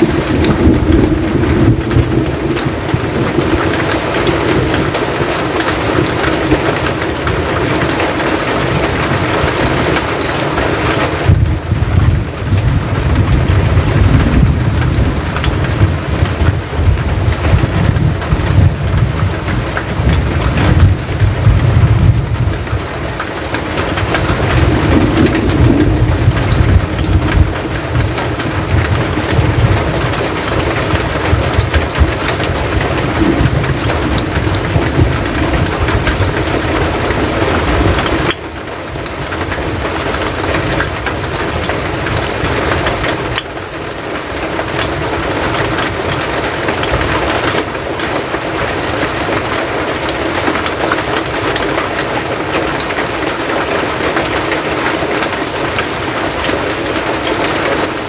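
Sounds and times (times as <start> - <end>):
deep rumble: 0.0 - 5.2, 11.3 - 23.0, 23.8 - 38.3
rain on a metal roof: 0.0 - 58.0.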